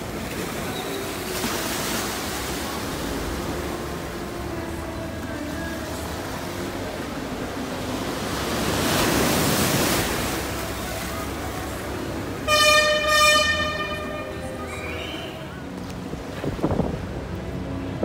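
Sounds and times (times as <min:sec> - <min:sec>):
sea water splashing in cave: 0:00.1 - 0:04.0, 0:08.1 - 0:11.2
boat horn blast: 0:12.3 - 0:15.5.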